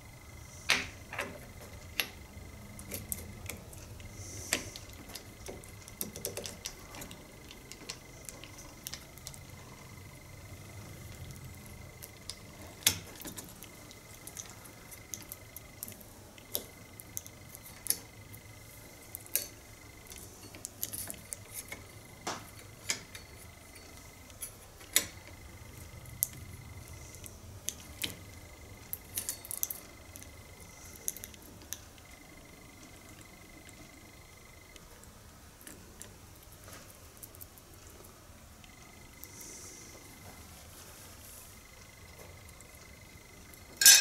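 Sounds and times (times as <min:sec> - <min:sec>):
small metal parts clinking: 0:43.8 - 0:44.0.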